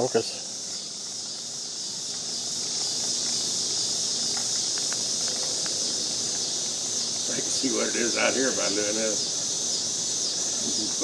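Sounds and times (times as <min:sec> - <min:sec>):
insects buzzing shrilly: 0:00.0 - 0:11.0.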